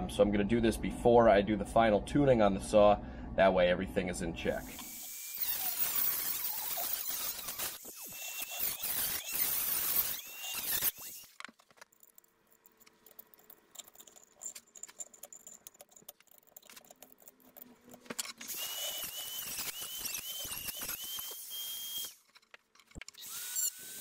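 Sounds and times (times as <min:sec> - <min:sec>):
rotary tool cutting metal: 0:04.6 - 0:24.0
screwdriver scraping and clicking: 0:04.8 - 0:23.3.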